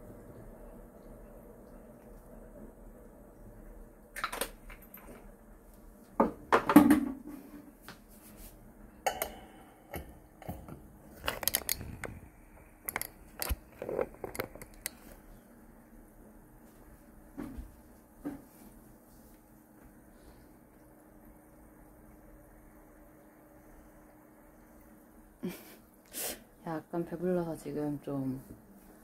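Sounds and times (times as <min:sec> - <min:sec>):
clicks and knocks of small objects: 0:11.2 - 0:12.2, 0:12.8 - 0:15.0.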